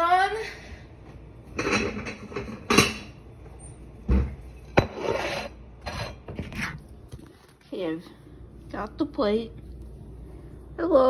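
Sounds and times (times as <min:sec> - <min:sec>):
plate handling clatter: 0:01.5 - 0:03.2.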